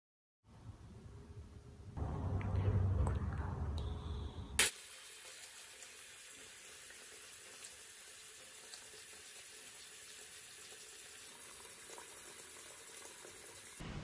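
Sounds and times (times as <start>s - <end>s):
sink tap running: 4.6s - 13.8s.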